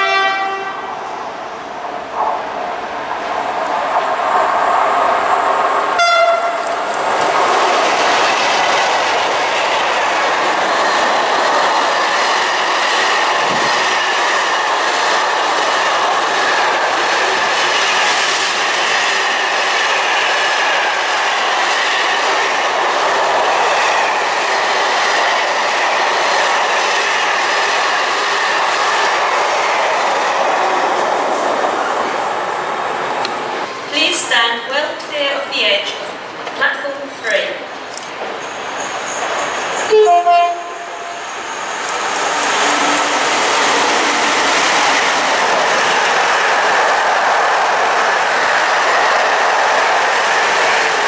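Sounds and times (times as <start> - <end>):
train horn blast: 0.0 - 0.9, 6.0 - 6.7, 39.9 - 41.2.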